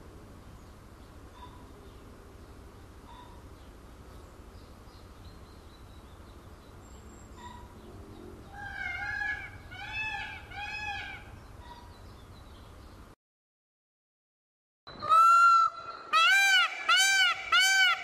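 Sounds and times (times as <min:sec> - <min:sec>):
peafowl calling: 0:08.5 - 0:11.9, 0:14.9 - 0:18.0.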